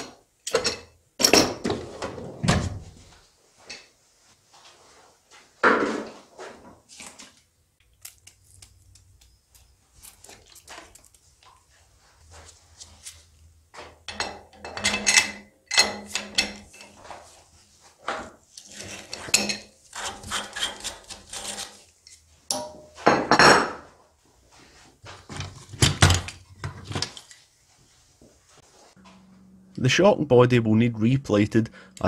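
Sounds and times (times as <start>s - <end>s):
hand tools clinking on metal: 14.1s - 17.0s
tool clattering in metal tray: 14.1s - 17.1s.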